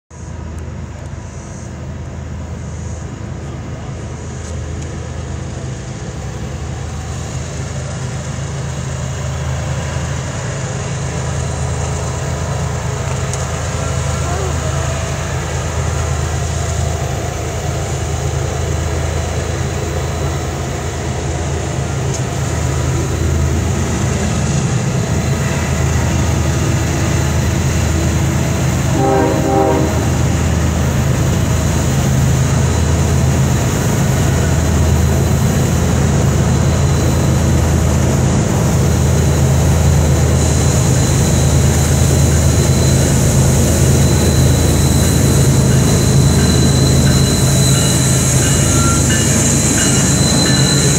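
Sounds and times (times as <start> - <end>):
diesel locomotive engine rumble: 0.0 - 50.9
train horn blast: 28.8 - 30.5
thin high squeal: 43.9 - 50.9.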